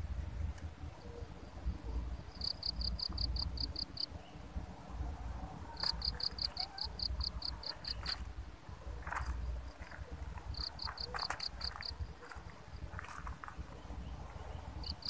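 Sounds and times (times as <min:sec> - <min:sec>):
insect chirping in high pips: 0:01.0 - 0:04.1, 0:05.7 - 0:08.3, 0:09.0 - 0:13.2, 0:14.7 - 0:15.0.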